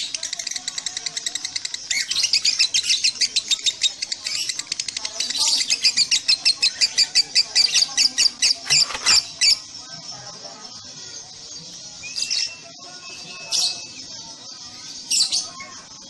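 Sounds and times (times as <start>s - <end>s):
lovebird rapid shrill chirps: 0.0s - 9.7s.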